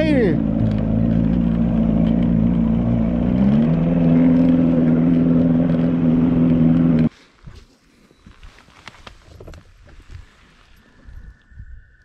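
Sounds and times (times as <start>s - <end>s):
outboard motor running: 0.0s - 7.1s.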